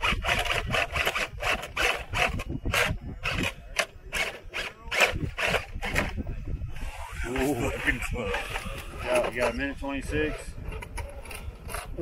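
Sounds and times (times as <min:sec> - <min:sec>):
tyres grinding over rock: 0:00.0 - 0:06.2.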